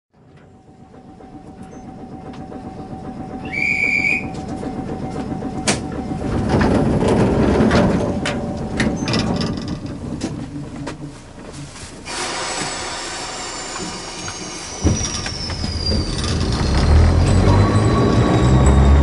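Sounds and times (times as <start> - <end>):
train traction motor running noise: 0.1 - 19.0
short high whistle tone: 3.4 - 4.4.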